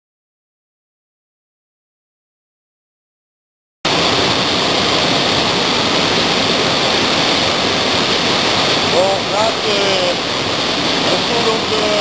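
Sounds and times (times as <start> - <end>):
waterfall crashing into a gorge: 3.9 - 12.0.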